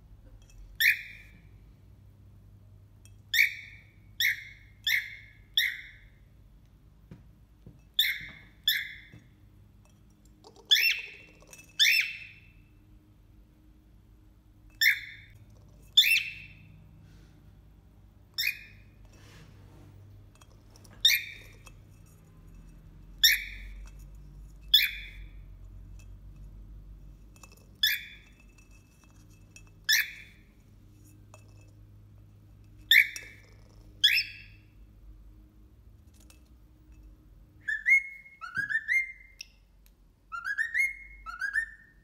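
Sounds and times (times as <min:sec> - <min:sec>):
cockatiel calls: 0:03.3 - 0:06.1, 0:08.0 - 0:09.2, 0:10.6 - 0:12.5, 0:14.8 - 0:15.3, 0:23.2 - 0:23.6, 0:37.7 - 0:39.4, 0:40.3 - 0:41.9.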